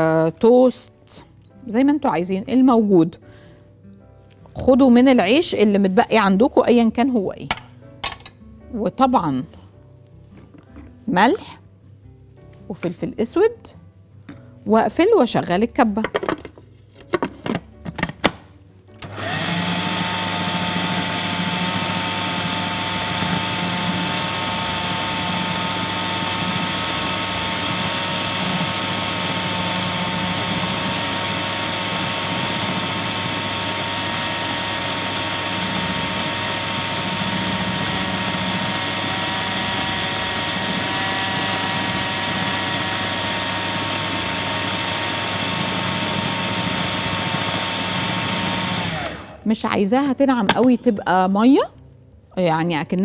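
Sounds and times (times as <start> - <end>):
food processor motor whine: 19.0 - 49.4.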